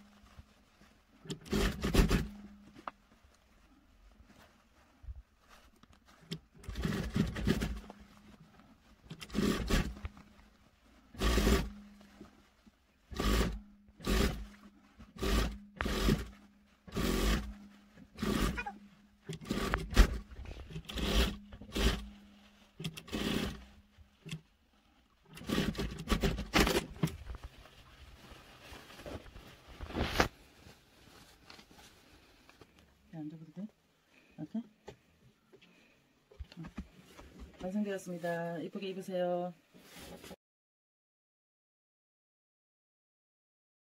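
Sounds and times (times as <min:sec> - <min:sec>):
sewing machine stitching in bursts: 0:01.3 - 0:02.4, 0:06.6 - 0:07.9, 0:09.1 - 0:10.0, 0:11.1 - 0:11.8, 0:13.1 - 0:16.3, 0:16.9 - 0:22.1, 0:22.8 - 0:23.7, 0:25.3 - 0:27.1.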